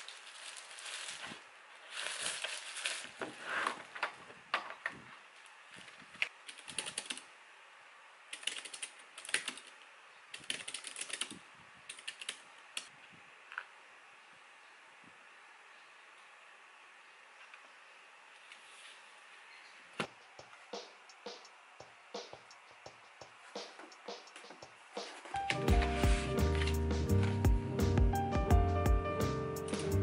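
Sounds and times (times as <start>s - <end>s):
plastic sleeve rustling: 0.0s - 7.0s, 25.0s - 27.4s
typing on mechanical keyboard: 6.5s - 7.2s, 8.3s - 9.8s, 10.4s - 12.4s.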